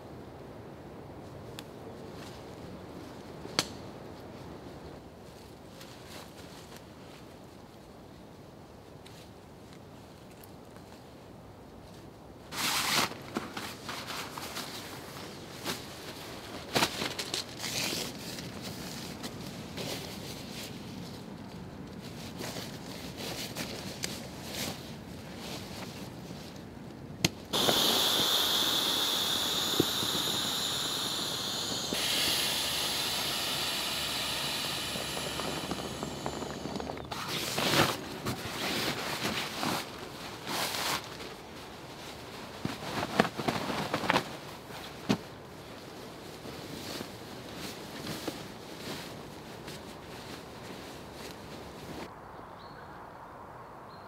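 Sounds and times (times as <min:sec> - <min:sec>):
air rushing through valve: 0:27.5 - 0:37.9
leaves and nylon gear rustling: 0:27.5 - 0:52.1.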